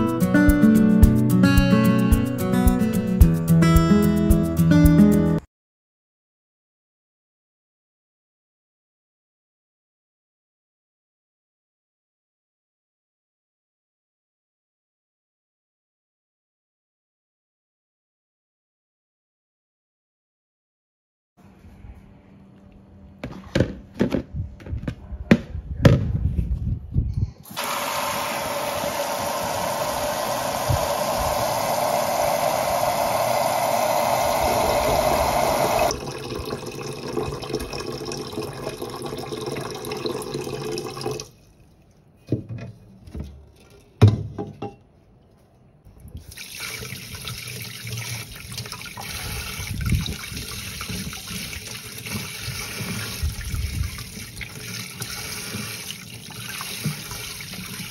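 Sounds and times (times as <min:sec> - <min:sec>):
tap running water into pot: 0:27.5 - 0:31.4, 0:35.7 - 0:41.3, 0:46.3 - 0:57.9
vegetables rinsed by hand: 0:27.5 - 0:41.8, 0:46.2 - 0:57.9.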